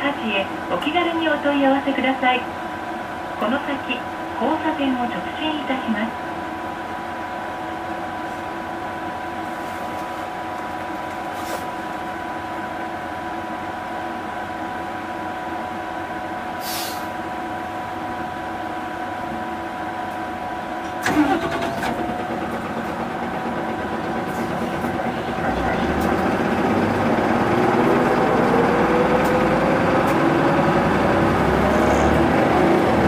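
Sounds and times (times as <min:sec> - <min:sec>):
bus engine drone with whine: 0:00.0 - 0:33.0
brief air hiss: 0:16.6 - 0:17.1.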